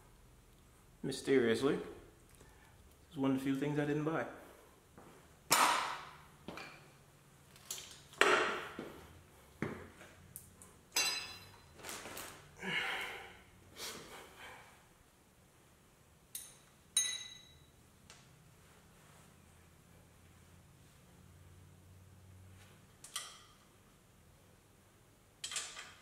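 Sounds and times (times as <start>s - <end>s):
metal hand tools clanking: 11.0s - 11.7s.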